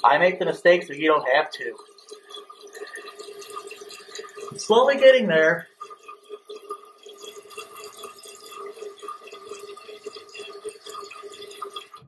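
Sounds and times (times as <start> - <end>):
water trickling into toilet tank: 0.0 - 12.0.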